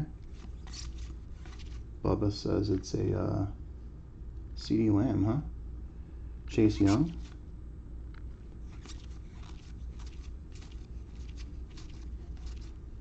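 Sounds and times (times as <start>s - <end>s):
steady low hum: 0.0s - 13.0s
trading cards clicking and rustling: 0.2s - 1.8s, 8.2s - 13.0s.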